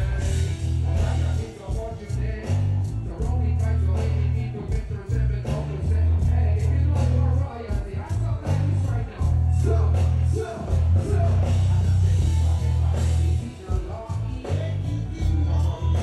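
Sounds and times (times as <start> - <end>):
heavy pounding bass line: 0.0 - 16.0
person singing: 0.0 - 16.0.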